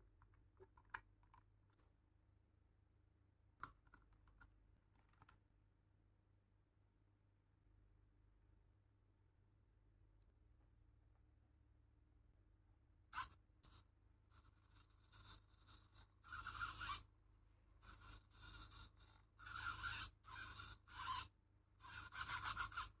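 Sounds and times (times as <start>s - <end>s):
servo buzzing in rasping bursts: 13.2s - 17.1s, 17.8s - 23.0s.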